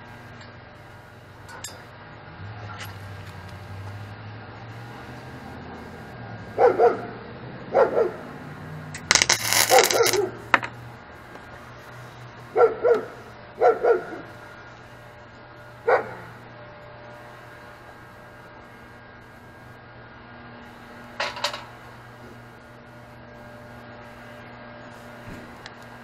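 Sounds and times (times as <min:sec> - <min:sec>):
dog barking: 0:06.5 - 0:08.3, 0:09.7 - 0:10.4, 0:12.5 - 0:14.3, 0:15.8 - 0:16.4
welder crackling hiss: 0:09.0 - 0:10.2.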